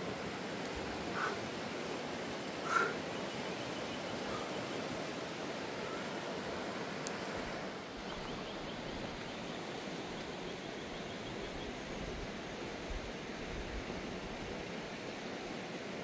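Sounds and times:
river rushing: 0.0s - 10.4s.

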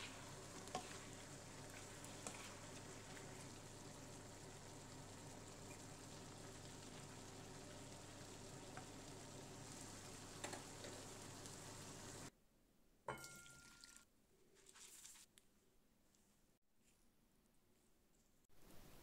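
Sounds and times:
food sizzling in a frying pan: 0.0s - 12.3s
clink on a metal pot: 13.1s - 14.0s.

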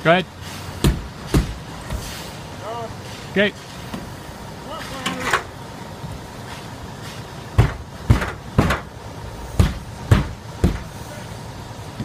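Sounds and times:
heavy thuds on a roof: 0.8s - 2.0s, 7.6s - 8.9s, 9.6s - 11.0s.

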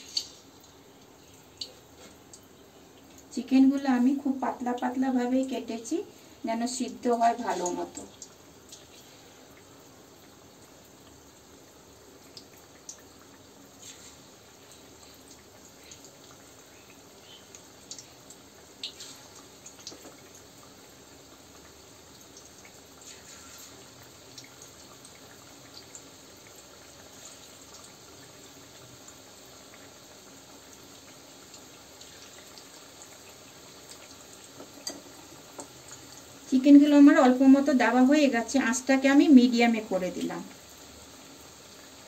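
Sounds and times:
oil popping and crackling: 0.0s - 3.3s, 7.3s - 36.5s
chicken deep-frying in oil: 0.0s - 42.0s.

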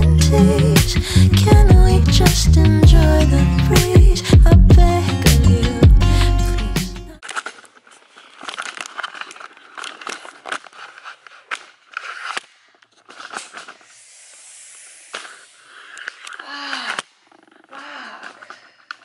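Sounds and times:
background music: 0.0s - 7.2s
camera handling rustling and clicks: 7.2s - 13.9s, 15.1s - 17.3s.

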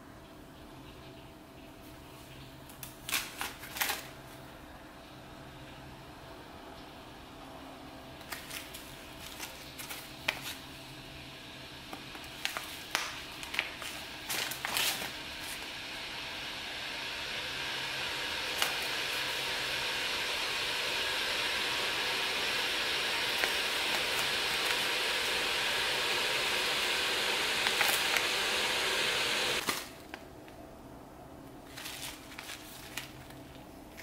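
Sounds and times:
steady rushing hiss: 8.3s - 29.6s.

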